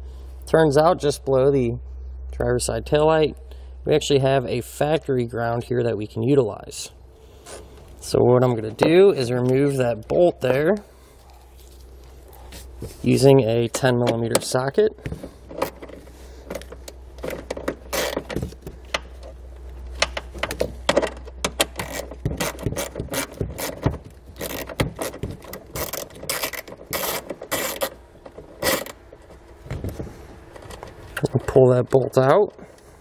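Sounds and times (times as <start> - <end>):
hand ratchet clicking: 21.4 - 28.0, 28.6 - 29.0.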